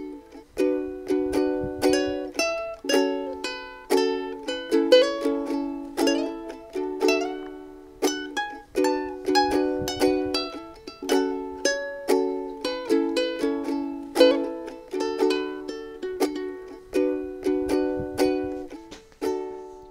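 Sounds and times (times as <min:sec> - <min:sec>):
ukulele fingerpicked: 0:00.0 - 0:19.9.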